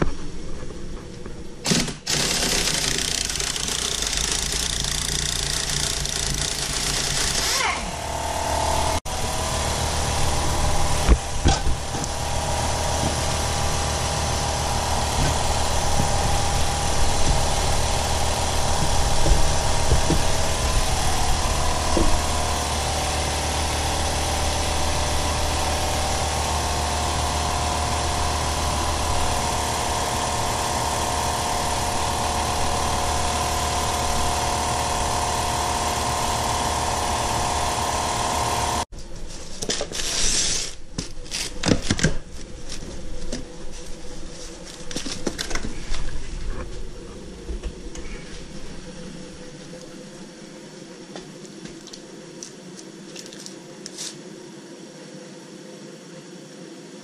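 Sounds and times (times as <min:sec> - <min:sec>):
machine drone: 0:00.1 - 0:38.9.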